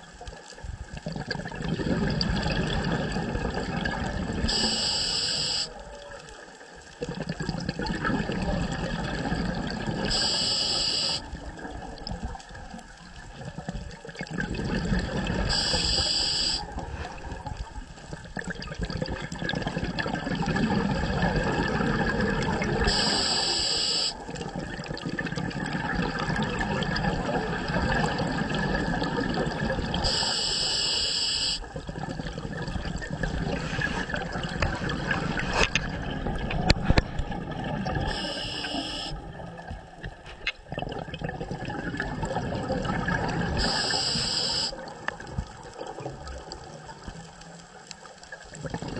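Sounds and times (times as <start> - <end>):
exhaled bubbles rumbling: 0.0 - 4.7, 6.8 - 10.4, 11.2 - 23.1, 24.2 - 30.2, 31.7 - 38.4, 39.0 - 48.9
regulator inhalation hiss: 4.5 - 5.8, 10.1 - 11.3, 15.5 - 16.8, 22.8 - 24.2, 30.0 - 31.7, 38.1 - 39.2, 43.6 - 44.8.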